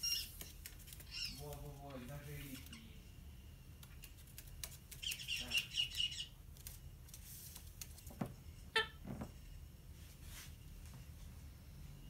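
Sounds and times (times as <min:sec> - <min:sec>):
bird chirping: 0:00.0 - 0:03.0, 0:04.9 - 0:06.4.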